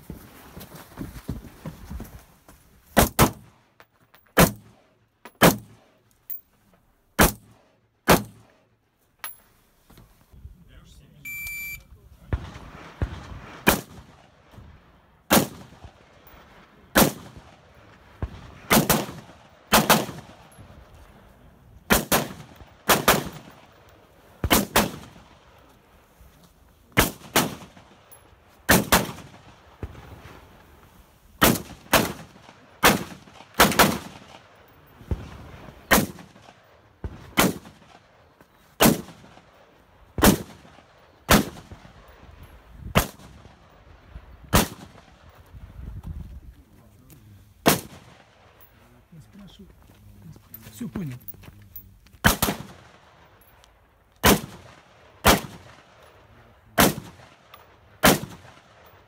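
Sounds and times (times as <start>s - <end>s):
rifle shots with echo: 4.4s - 6.0s, 7.2s - 8.6s, 12.3s - 14.5s, 15.3s - 20.8s, 21.9s - 25.6s, 26.9s - 30.6s, 31.4s - 42.3s, 42.9s - 45.4s, 47.6s - 48.6s, 52.2s - 53.5s, 54.2s - 59.0s.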